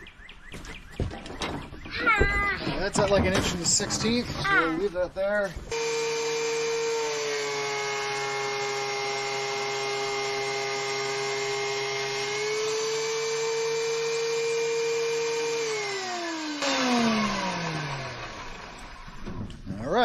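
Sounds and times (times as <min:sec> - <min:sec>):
thickness planer whining: 0:05.7 - 0:19.9.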